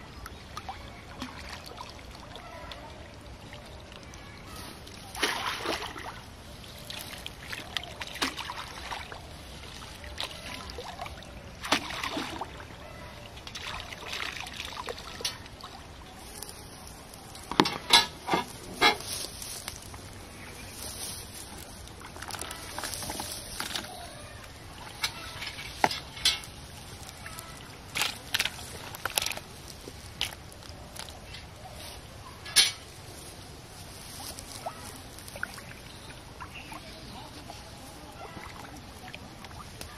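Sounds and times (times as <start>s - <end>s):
water sloshing and trickling: 0.0s - 39.9s
sharp taps and small splashes: 4.9s - 12.7s, 13.3s - 15.8s, 21.8s - 31.6s.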